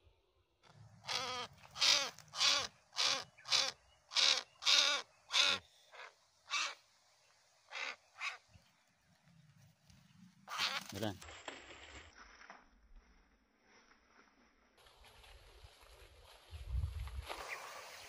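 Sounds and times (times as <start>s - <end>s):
bird squawking: 1.0s - 6.8s, 10.5s - 11.0s.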